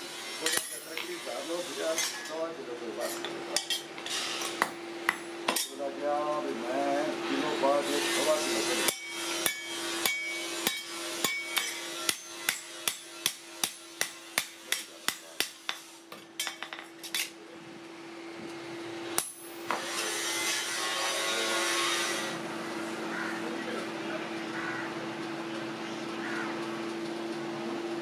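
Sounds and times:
hammer striking metal: 0.4 - 1.2, 8.8 - 17.3, 19.2 - 21.1.

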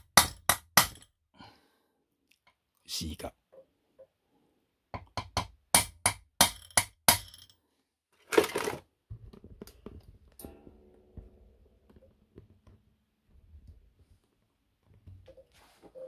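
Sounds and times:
hammer striking steel punch: 0.0 - 1.1, 5.0 - 7.5.

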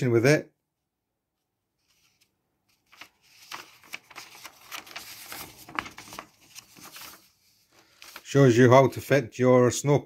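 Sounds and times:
paper leaflet rustling: 1.8 - 9.1.

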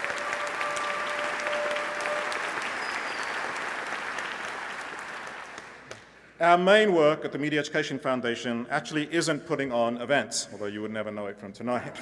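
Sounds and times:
audience applause: 0.0 - 6.0.

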